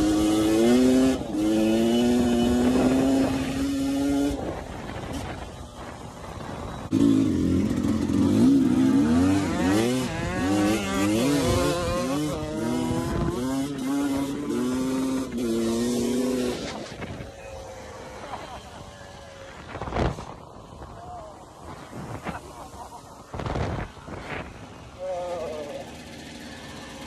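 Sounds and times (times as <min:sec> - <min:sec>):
dirt bike engine revving: 0:00.0 - 0:20.7.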